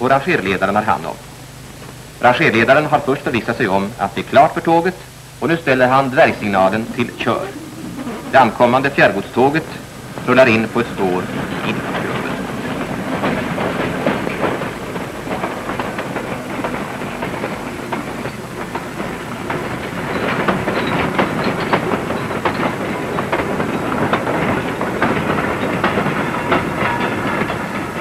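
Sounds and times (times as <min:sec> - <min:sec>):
train wheels clattering over rail joints: 0:10.1 - 0:28.0.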